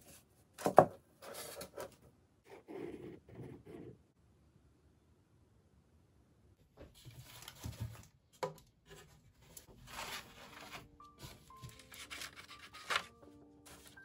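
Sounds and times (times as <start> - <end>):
paper rustling and crackling: 9.0 - 14.0
instrumental music with held notes: 10.0 - 14.0.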